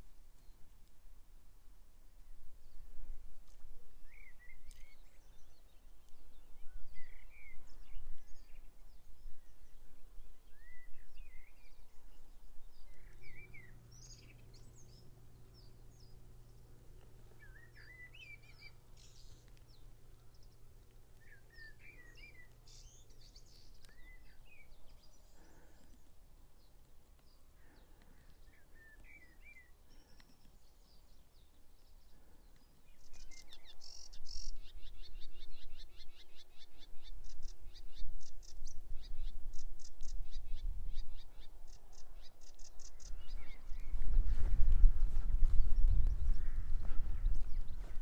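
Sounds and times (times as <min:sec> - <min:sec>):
birds singing and chirping: 0:04.1 - 0:48.0.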